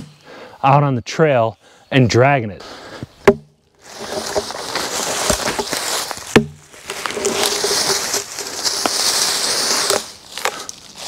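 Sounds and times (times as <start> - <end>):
log dragging through dry leaves: 3.7 - 11.0.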